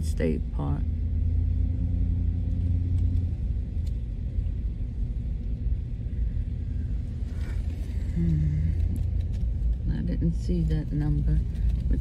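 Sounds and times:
vehicle rumble from inside cab: 0.0s - 12.0s
faint hum: 2.5s - 12.0s.

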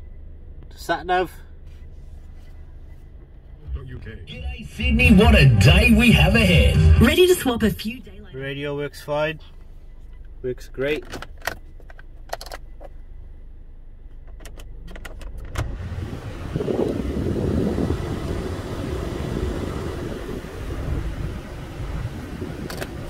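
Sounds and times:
car engine idling: 0.0s - 23.0s
heater blower fan: 15.6s - 23.0s.

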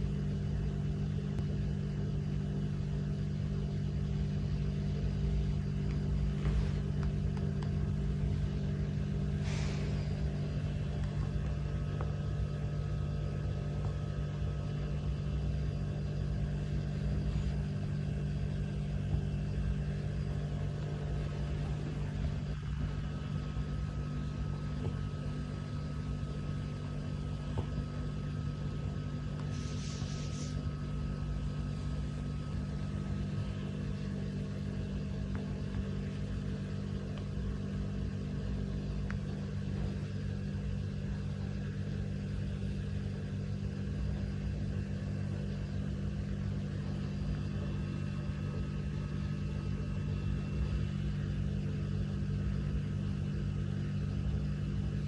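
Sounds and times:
steady low hum: 0.0s - 55.0s
soft hisses: 29.4s - 30.7s.

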